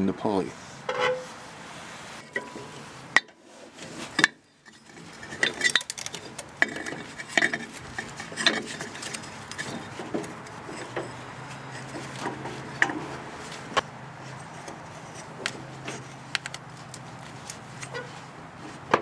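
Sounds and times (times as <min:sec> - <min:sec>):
metal clinks and knocks: 0:04.1 - 0:13.1.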